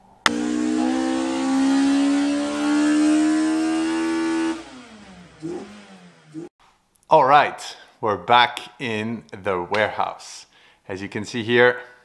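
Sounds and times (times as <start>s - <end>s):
car engine accelerating: 0.3s - 6.5s.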